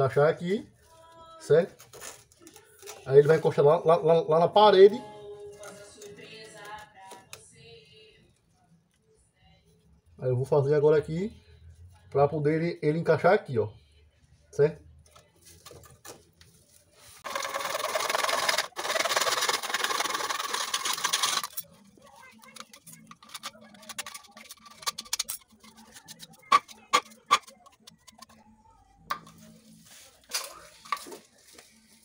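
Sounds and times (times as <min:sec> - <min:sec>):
knife scraping plastic pipe: 0:22.5 - 0:28.4.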